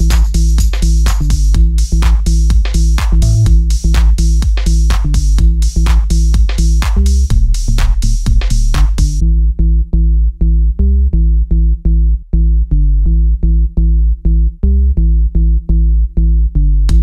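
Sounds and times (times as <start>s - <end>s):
pulsing synth bass line: 3.1s - 4.0s.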